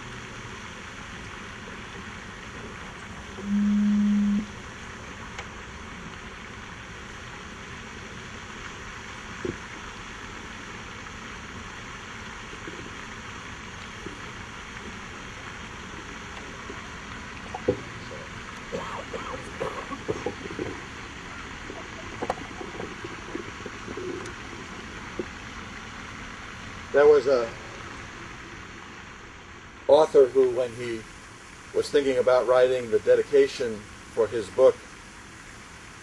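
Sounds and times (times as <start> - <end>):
background hiss: 0.0 - 36.0
loud low steady tone: 3.3 - 4.9.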